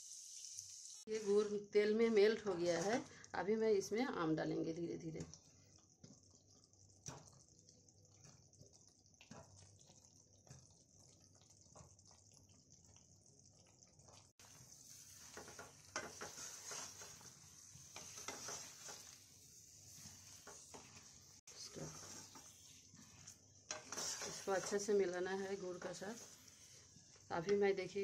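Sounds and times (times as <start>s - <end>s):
hot oil hissing: 0.0s - 4.4s, 14.3s - 28.0s.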